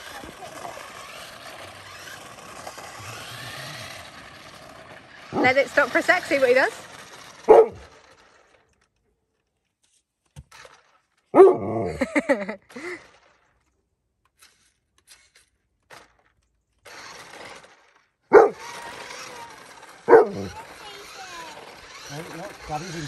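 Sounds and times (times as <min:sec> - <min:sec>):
dog talking bark: 0:20.1 - 0:20.8.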